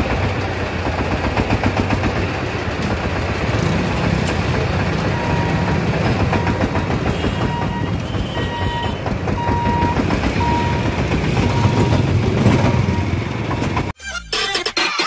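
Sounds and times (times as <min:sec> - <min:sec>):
motorcycle engine: 0:00.0 - 0:14.0
van engine running: 0:00.0 - 0:14.0.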